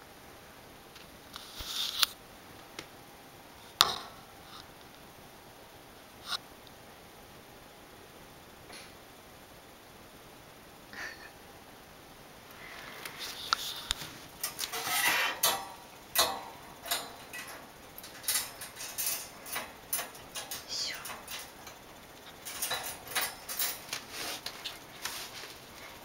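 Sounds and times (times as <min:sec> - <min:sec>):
rustling with clicks and clinks: 0:13.3 - 0:26.0.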